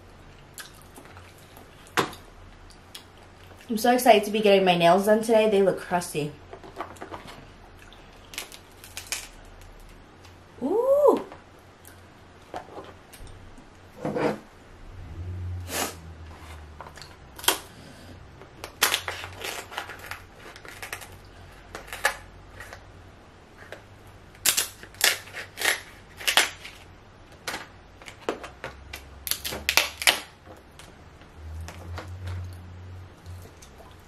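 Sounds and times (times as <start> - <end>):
crab shells snapping and crackling: 8.2 - 10.4, 24.3 - 30.4.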